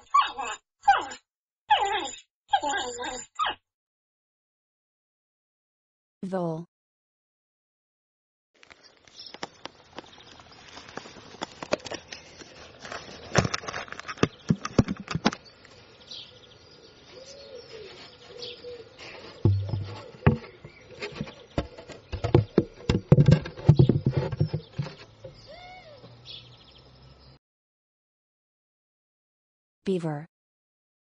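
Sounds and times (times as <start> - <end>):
birds chirping: 1.8 - 3.6, 8.8 - 27.4
rustling: 8.6 - 15.8.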